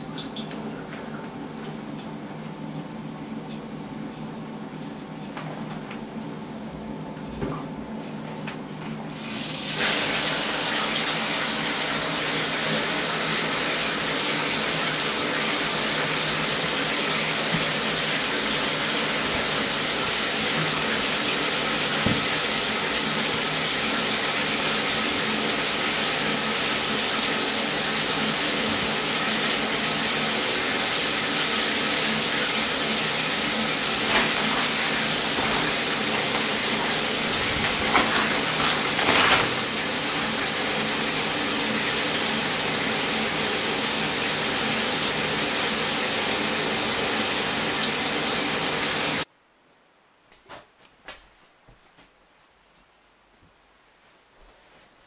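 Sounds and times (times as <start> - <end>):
shower water spraying into bathtub: 9.1 - 49.3.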